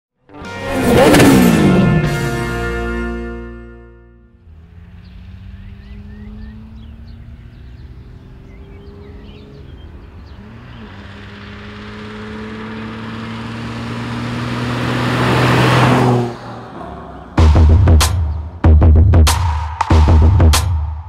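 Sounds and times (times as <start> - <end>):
car engine passing by: 0.5 - 2.1, 4.4 - 18.6
birds chirping: 4.4 - 18.6.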